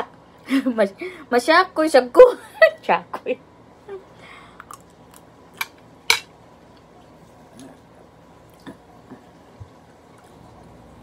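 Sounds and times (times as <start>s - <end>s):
utensils clinking against dishes: 6.1s - 6.3s.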